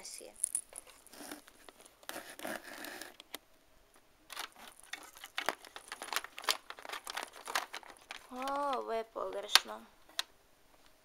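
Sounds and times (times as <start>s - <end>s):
plastic figures clicking and scraping: 4.3s - 10.3s.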